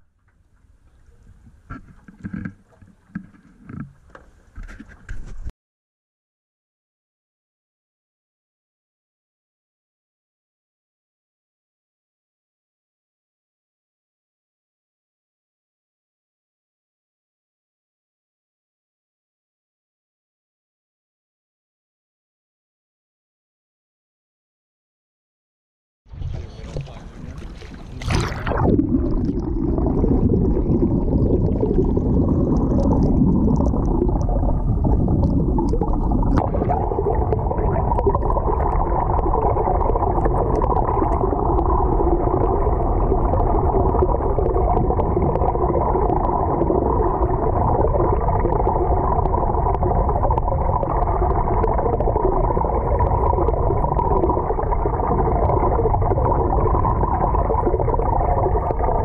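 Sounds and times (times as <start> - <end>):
splash: 26.1 - 49.0
muffled underwater current rushing: 26.1 - 59.0.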